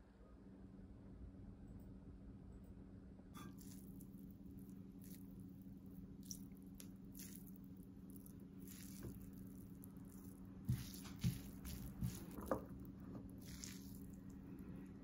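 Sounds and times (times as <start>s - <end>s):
noodles squishing: 3.6s - 15.0s.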